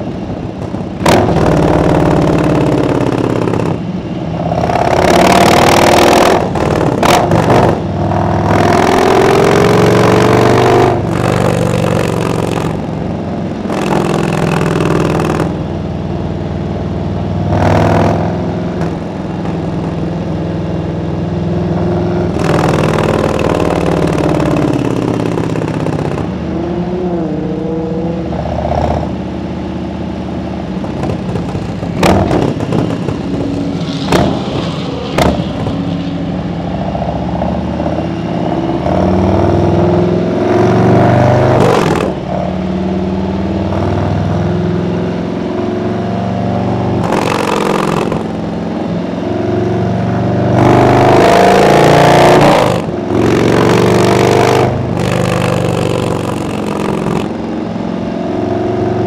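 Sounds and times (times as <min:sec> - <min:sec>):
motorcycle engine running: 0:00.0 - 0:38.0, 0:39.4 - 0:58.2
sharp cracks: 0:00.6 - 0:04.0, 0:04.6 - 0:07.8, 0:11.0 - 0:13.0, 0:13.7 - 0:15.7, 0:22.3 - 0:26.5, 0:30.8 - 0:36.0, 0:41.5 - 0:42.3, 0:47.0 - 0:48.5, 0:51.5 - 0:57.5.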